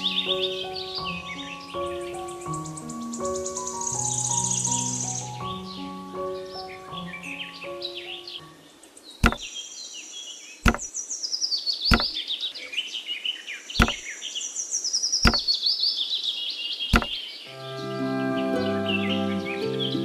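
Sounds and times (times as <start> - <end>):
sharp knocks: 9.2 - 9.5, 10.6 - 10.9, 11.9 - 12.2, 13.8 - 14.0, 15.2 - 15.5, 16.9 - 17.2
musical notes: 17.5 - 20.0.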